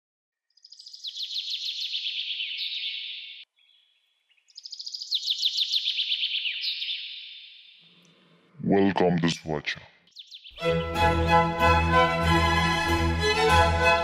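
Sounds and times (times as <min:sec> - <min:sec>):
bird singing rapid high chirps: 0:00.5 - 0:08.0, 0:10.0 - 0:10.9.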